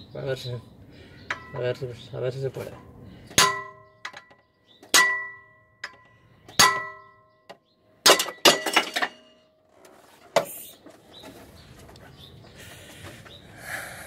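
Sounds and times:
hammer clanging on wrench: 3.3s - 7.1s.

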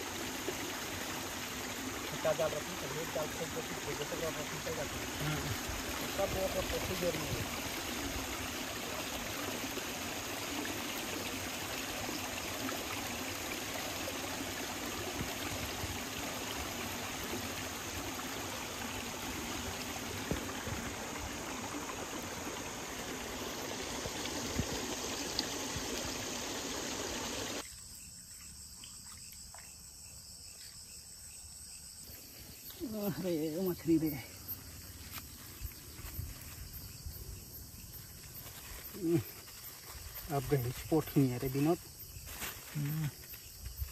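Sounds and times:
water rushing: 0.0s - 27.6s.

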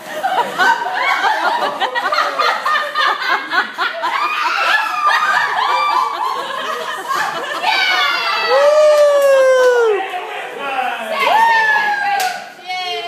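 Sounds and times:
group of people laughing: 0.0s - 10.2s.

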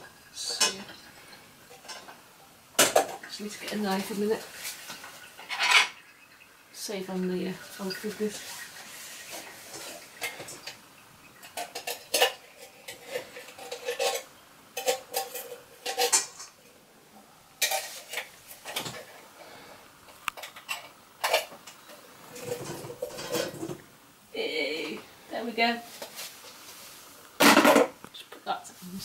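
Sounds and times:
metal kitchenware clinking: 5.3s - 6.2s, 11.4s - 16.6s, 17.6s - 19.1s.

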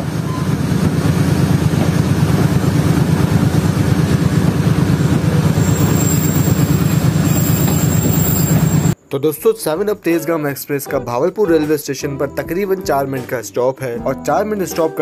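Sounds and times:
diesel locomotive engine rumbling: 0.0s - 9.0s
train rolling on track: 0.0s - 9.0s.

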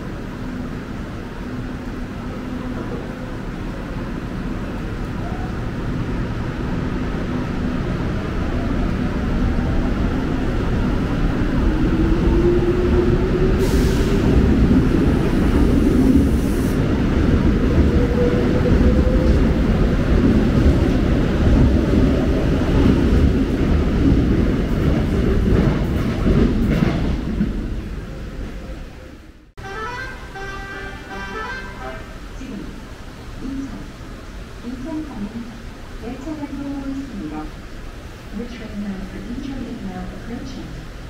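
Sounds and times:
train wheels rumbling on rails: 0.0s - 29.4s
hiss: 13.6s - 14.4s, 15.5s - 17.0s.

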